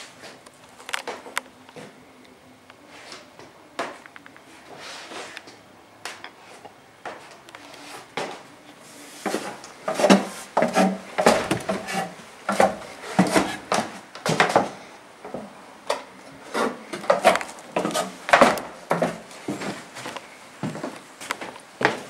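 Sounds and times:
footsteps on wooden boards: 9.2 - 15.5, 16.5 - 22.0
wood creaking and knocking: 10.0 - 14.7.

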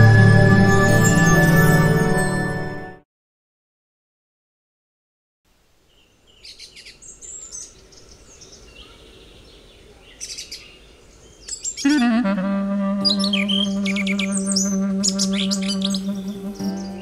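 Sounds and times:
faint outdoor background noise: 5.5 - 17.0
birds chirping: 5.8 - 17.0.

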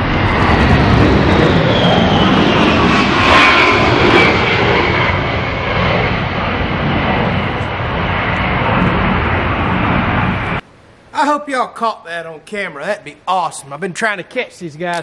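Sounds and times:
jets flying overhead: 0.0 - 10.7.

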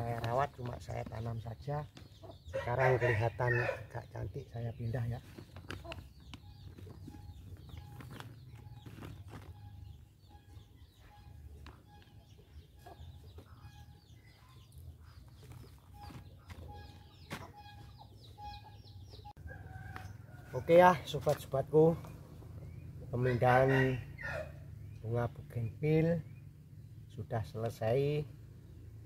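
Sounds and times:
small bird chirps: 4.8 - 20.4
bird calling: 4.9 - 20.4.

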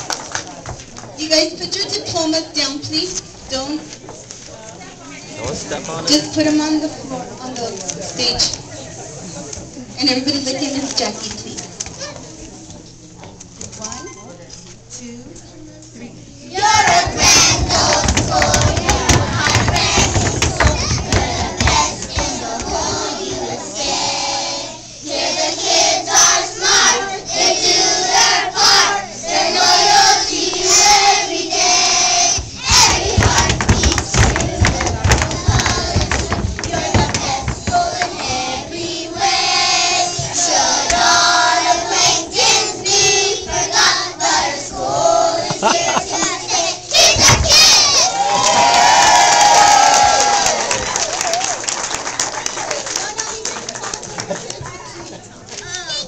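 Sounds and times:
children singing: 16.6 - 48.0.

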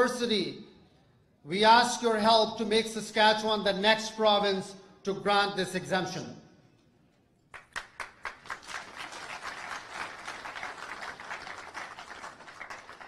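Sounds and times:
audience applauding: 7.5 - 13.0.

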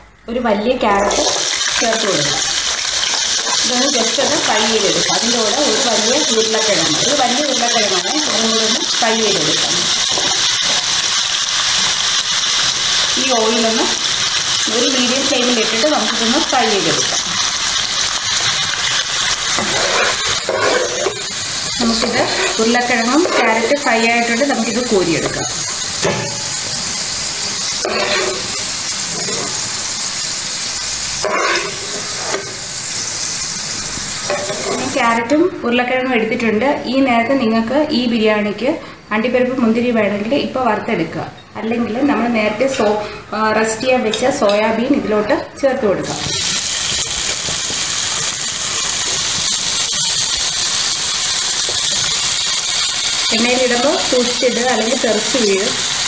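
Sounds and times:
oil sizzling in frying pan: 1.0 - 35.3, 46.0 - 56.0
steel ladle scooping: 19.5 - 23.7, 31.2 - 32.5.

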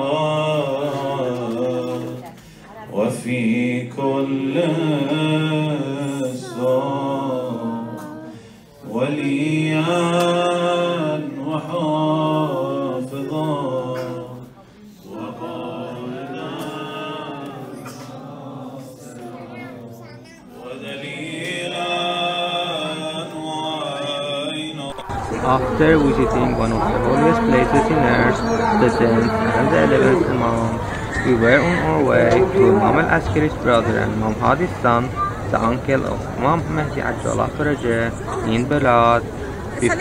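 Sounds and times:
man chanting: 3.0 - 8.3, 20.6 - 39.3.

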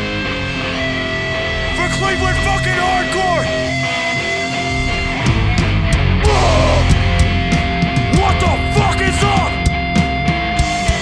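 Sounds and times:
distorted electric guitars: 0.0 - 11.0
drum kit and cymbal hits: 5.3 - 11.0.

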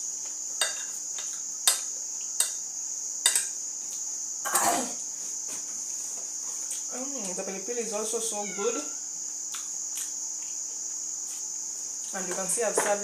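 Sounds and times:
crickets chirring: 0.0 - 13.0
metal spoon clinking on plate: 0.6 - 2.6, 3.3 - 3.5.

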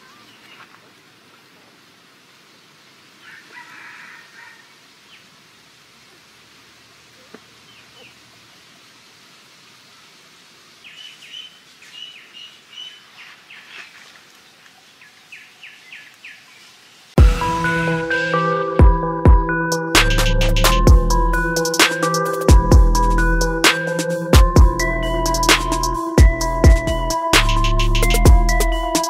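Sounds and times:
faint outdoor ambience: 0.0 - 29.0
loud music: 17.2 - 29.0.

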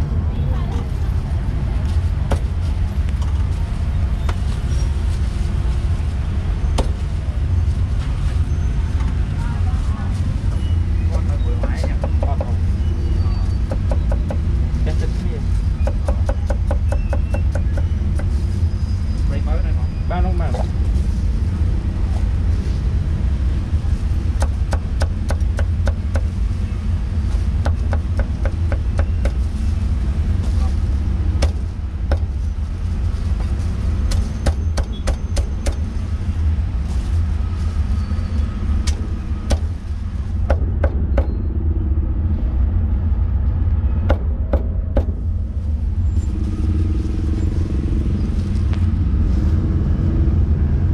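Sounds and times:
street traffic rumble: 0.0 - 50.9
cleaver chopping meat on wood: 24.4 - 26.3.

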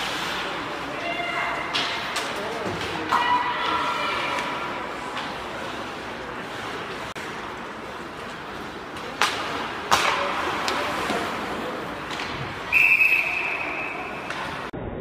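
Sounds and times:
hockey puck and stick cracks: 0.0 - 6.1, 8.2 - 14.7
crowd murmur: 0.0 - 14.7
referee's whistle blast: 12.7 - 14.2.

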